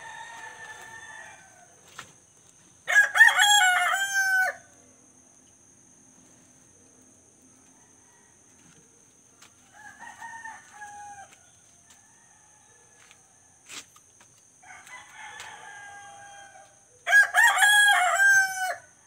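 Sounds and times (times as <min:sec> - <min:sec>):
rooster crowing: 0:00.0 - 0:01.8, 0:02.8 - 0:04.8, 0:07.6 - 0:08.7, 0:09.6 - 0:13.5, 0:14.6 - 0:19.0.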